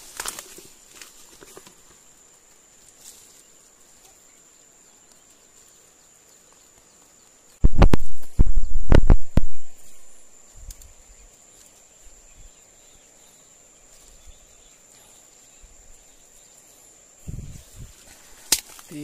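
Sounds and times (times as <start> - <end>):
rustles of vegetation: 0.0 - 19.0.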